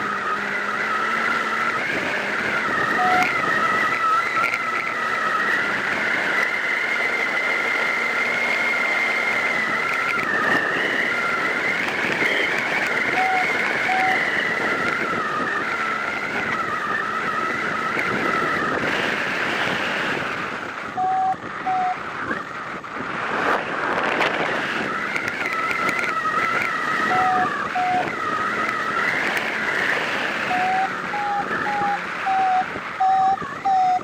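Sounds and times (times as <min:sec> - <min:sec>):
strong wind on microphone: 0:00.0 - 0:06.8, 0:09.3 - 0:34.0
wavering high whistle: 0:02.6 - 0:04.4, 0:12.2 - 0:15.6, 0:20.9 - 0:22.5, 0:25.4 - 0:29.1, 0:30.4 - 0:34.0
short electronic beeps: 0:02.9 - 0:03.4, 0:13.1 - 0:14.3, 0:21.0 - 0:22.0, 0:27.0 - 0:28.1, 0:30.4 - 0:34.0.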